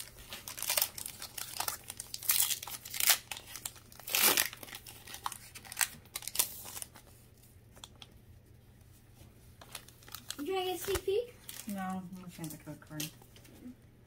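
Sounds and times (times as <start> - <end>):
foil wrapper crinkling and tearing: 0.0 - 7.2, 9.6 - 13.1.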